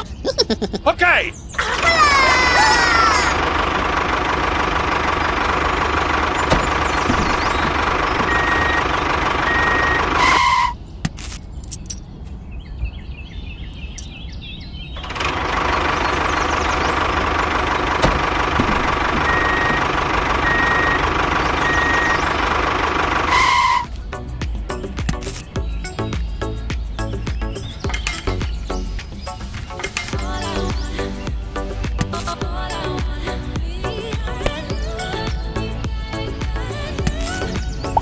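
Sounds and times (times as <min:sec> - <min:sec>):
tractor engine running: 0:00.0 - 0:12.0, 0:15.0 - 0:38.0
high reversing beeps: 0:08.2 - 0:10.8, 0:19.2 - 0:19.8, 0:20.4 - 0:22.3.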